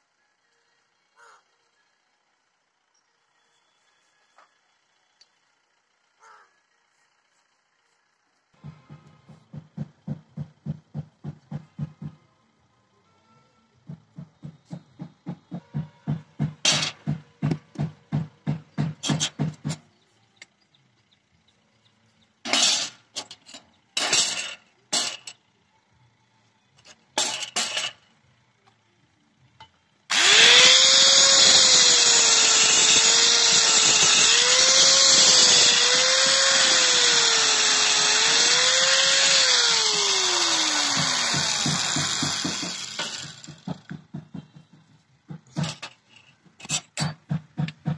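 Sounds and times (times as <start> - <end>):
angle grinder cutting wood: 30.1 - 43.7.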